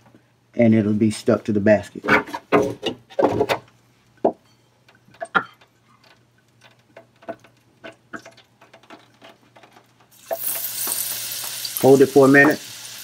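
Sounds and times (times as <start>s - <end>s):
hot oil popping: 9.6s - 13.0s.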